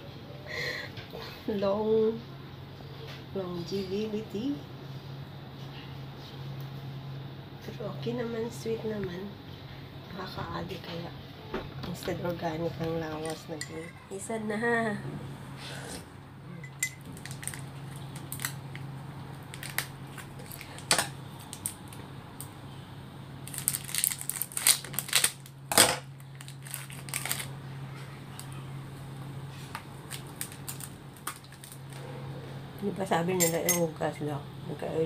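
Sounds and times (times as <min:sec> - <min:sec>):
steady low hum: 0:00.0 - 0:35.0
plastic wrapper crinkling: 0:17.1 - 0:22.1, 0:23.4 - 0:27.6, 0:29.7 - 0:32.0.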